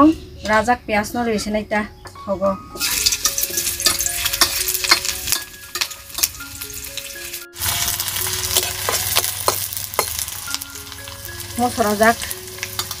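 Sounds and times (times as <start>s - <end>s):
food sizzling in hot oil: 2.8s - 13.0s.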